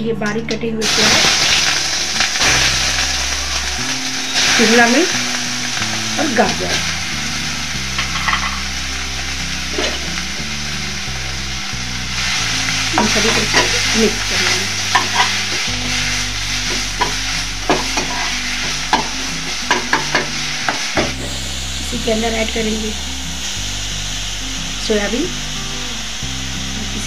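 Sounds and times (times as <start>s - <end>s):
vegetables sizzling in hot oil: 0.8s - 27.0s
spatula scraping and tapping pan: 8.0s - 8.6s.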